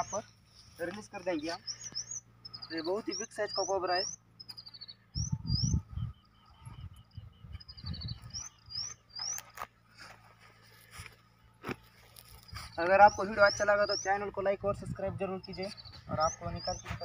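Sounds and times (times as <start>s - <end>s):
songbird singing: 0.0s - 17.0s
low rumbling noise: 4.2s - 9.2s.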